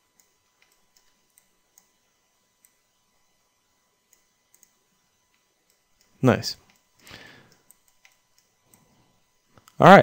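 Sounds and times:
computer mouse clicks: 0.1 - 2.0, 2.6 - 2.8, 4.1 - 8.9.

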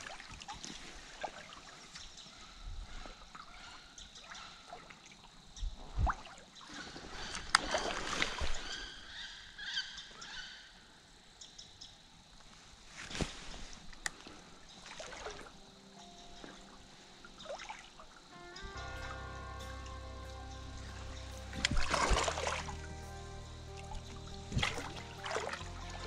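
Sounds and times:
water sloshing and splashing: 0.0 - 2.2, 3.0 - 8.8, 13.0 - 15.7, 16.4 - 18.3, 20.8 - 23.1, 23.7 - 26.0
bird calls: 6.5 - 10.8.

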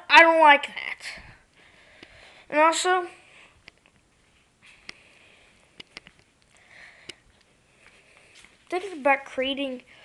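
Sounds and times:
faint sharp clicks: 5.8 - 7.5.

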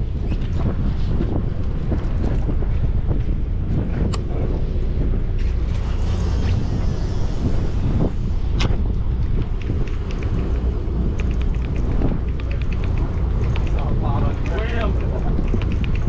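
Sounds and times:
low rumble: 0.0 - 16.0
wind buffeting microphone: 0.0 - 16.0
sharp tick: 8.6 - 16.0
faint rapid clicks: 9.2 - 16.0.

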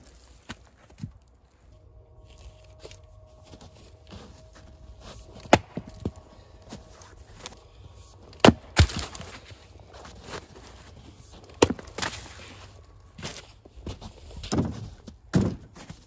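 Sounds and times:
axe striking wood: 5.4 - 6.2, 8.4 - 9.3, 11.6 - 12.1.

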